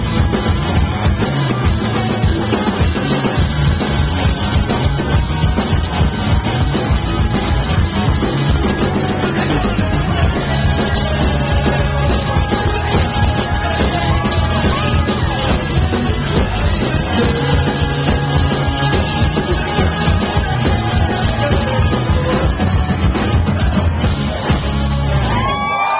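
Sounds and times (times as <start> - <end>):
bass guitar: 0.0 - 25.9
drum kit: 0.0 - 25.9
electric guitars: 0.0 - 25.9
man singing: 8.4 - 24.0.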